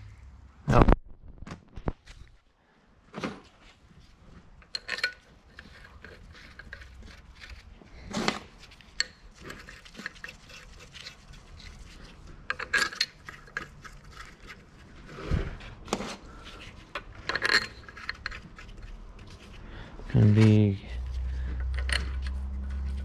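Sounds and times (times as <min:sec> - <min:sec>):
metal bolts clinking: 0:04.6 - 0:07.6, 0:12.5 - 0:14.3, 0:17.2 - 0:18.7, 0:21.6 - 0:23.0.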